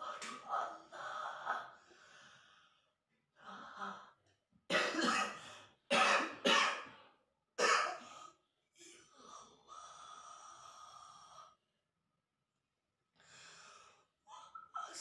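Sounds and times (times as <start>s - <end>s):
man coughing harshly: 4.7s - 6.9s, 7.6s - 8.0s.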